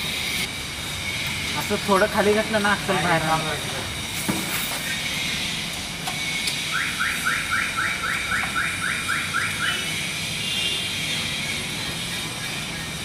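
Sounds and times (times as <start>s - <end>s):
electronic alarm rising chirps: 6.6s - 10.6s.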